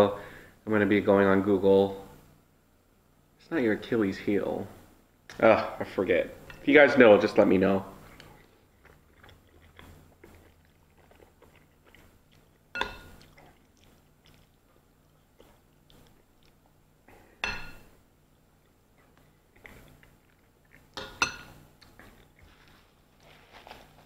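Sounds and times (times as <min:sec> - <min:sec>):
chewing and mouth sounds: 0:07.4 - 0:17.1, 0:18.2 - 0:24.0.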